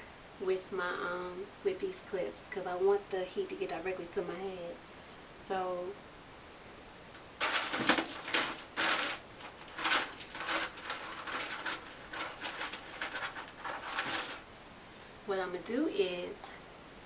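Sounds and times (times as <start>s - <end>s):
hair rustling: 7.4s - 14.5s.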